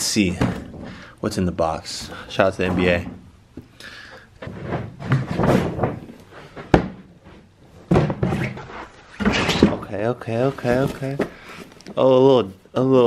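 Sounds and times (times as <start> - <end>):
cardboard box rustling and scraping: 10.4 - 11.7.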